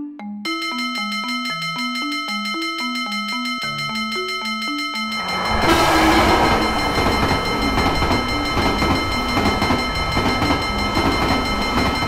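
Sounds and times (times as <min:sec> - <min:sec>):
steady high ringing: 0:00.5 - 0:12.0
train rumbling rattle: 0:05.2 - 0:12.0.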